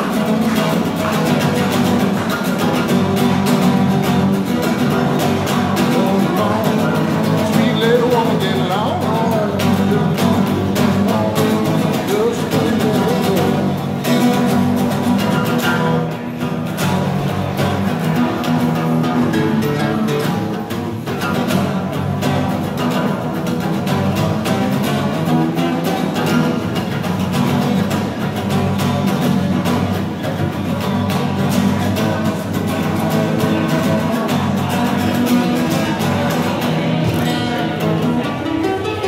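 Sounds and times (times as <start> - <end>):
guitar playing: 0.0 - 39.0
man singing: 0.9 - 16.1, 30.3 - 39.0.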